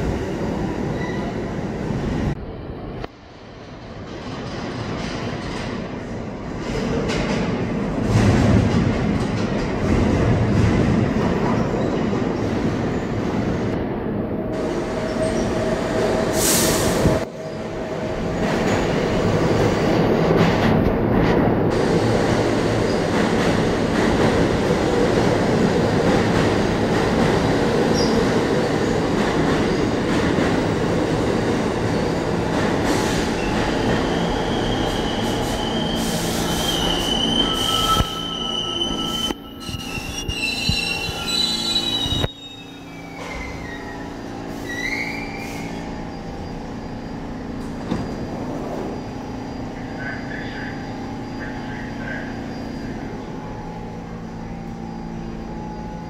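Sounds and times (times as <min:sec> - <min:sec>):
subway train wheels rumbling: 0:00.0 - 0:56.0
brake squeal: 0:33.3 - 0:53.1.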